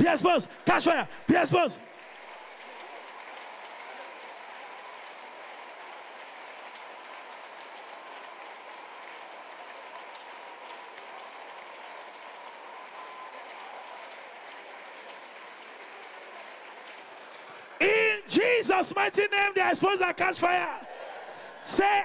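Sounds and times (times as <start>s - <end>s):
congregation praying aloud: 0.0s - 1.9s, 17.8s - 22.0s
congregation clapping: 0.0s - 22.0s.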